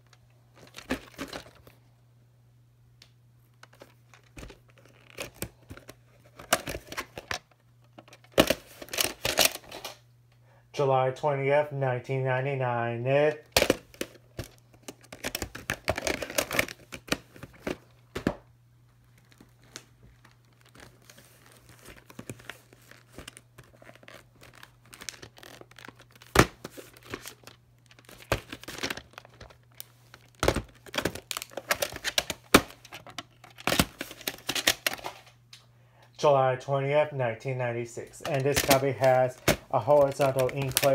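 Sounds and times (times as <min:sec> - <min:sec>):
plastic cases clacking: 0:00.6 - 0:01.8, 0:03.6 - 0:10.0, 0:13.4 - 0:18.5, 0:19.2 - 0:35.3, 0:38.0 - 0:40.9
plastic cases sliding rustle: 0:38.1 - 0:40.9.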